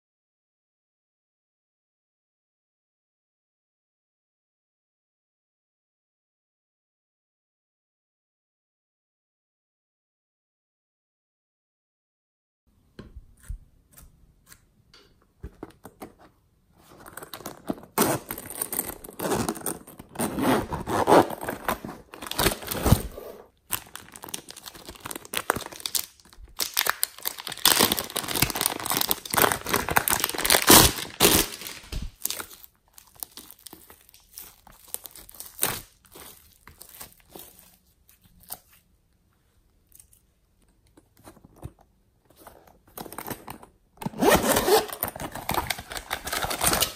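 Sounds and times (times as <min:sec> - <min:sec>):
plastic packet crinkling: 0:20.8 - 0:38.7, 0:44.5 - 0:46.9.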